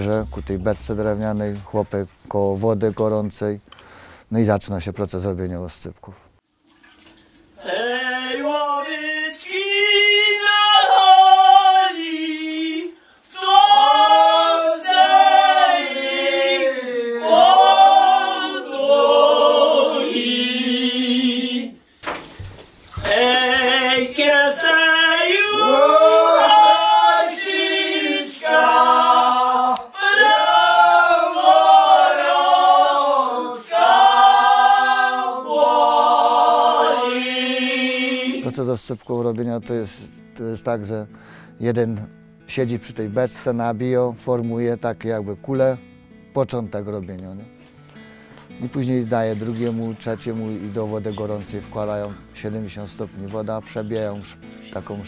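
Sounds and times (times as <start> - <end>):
voices singing in harmony: 7.6 - 21.9, 23.0 - 38.8.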